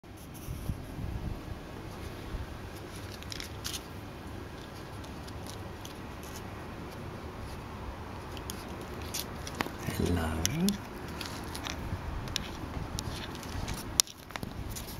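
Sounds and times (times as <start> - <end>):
claws clicking on stone: 10.7 - 14.9.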